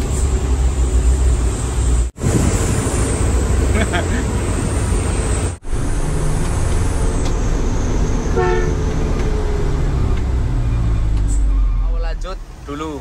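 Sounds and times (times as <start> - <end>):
truck driving on wet road: 0.0 - 13.0
truck horn blast: 8.3 - 8.9.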